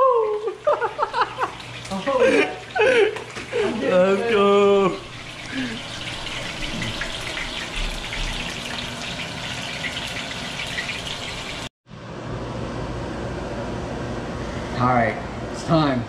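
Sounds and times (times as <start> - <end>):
fish sizzling in hot oil: 5.0 - 11.7
steady low hum: 11.9 - 16.0.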